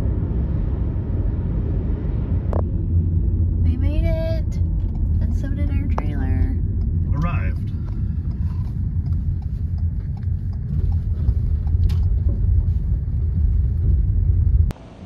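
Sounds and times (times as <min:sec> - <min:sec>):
car tyres rolling over gravel: 0:07.0 - 0:14.7.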